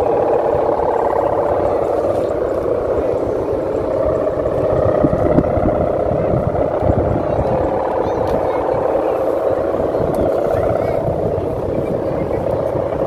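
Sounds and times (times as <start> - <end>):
kite hummers droning in wind: 0.0 - 13.0
low rumble: 0.0 - 13.0.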